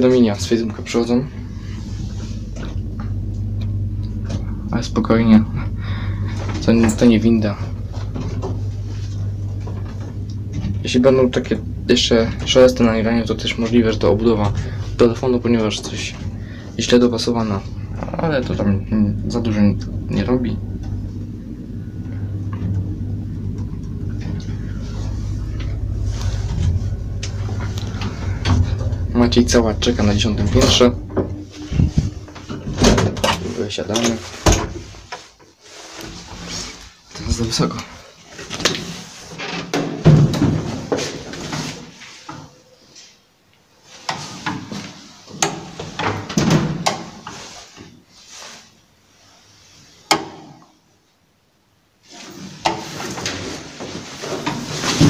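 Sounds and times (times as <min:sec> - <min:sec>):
elevator humming: 0:00.0 - 0:35.1.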